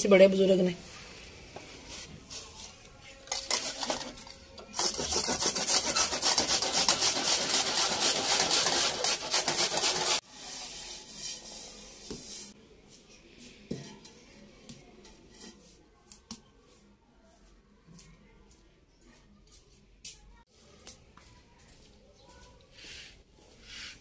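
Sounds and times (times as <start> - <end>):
carrots rasping on metal grater: 3.4 - 10.2.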